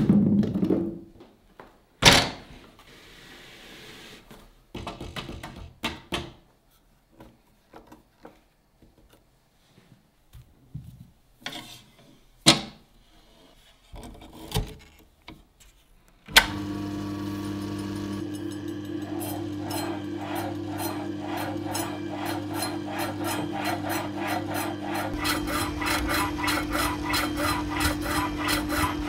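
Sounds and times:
slicer motor humming: 16.3 - 29.0.

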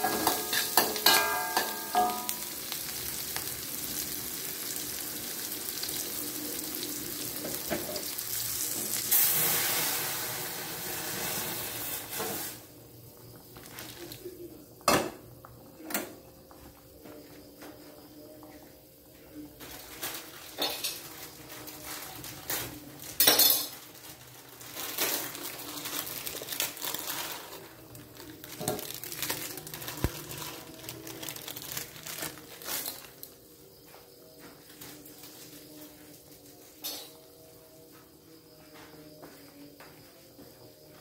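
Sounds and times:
metal spatula clinking on wok: 0.0 - 2.4.

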